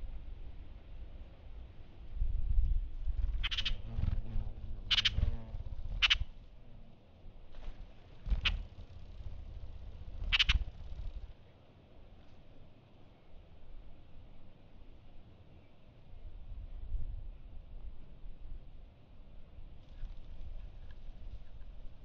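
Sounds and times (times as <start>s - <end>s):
hummingbird wings humming: 3.0s - 15.2s
hummingbird chip calls: 3.4s - 6.4s, 8.3s - 11.3s.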